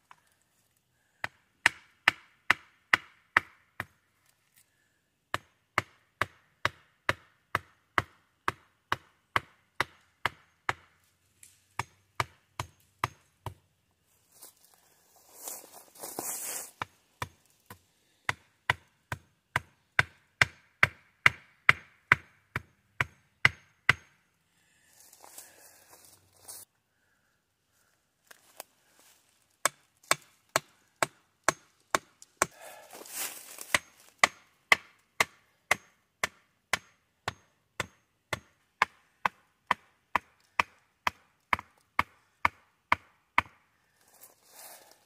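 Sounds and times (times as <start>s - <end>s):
axe chopping wood: 1.2s - 3.9s, 5.4s - 11.0s, 11.8s - 13.6s, 16.8s - 24.2s, 29.6s - 32.6s, 33.5s - 43.6s
rustling scrape: 14.3s - 16.8s.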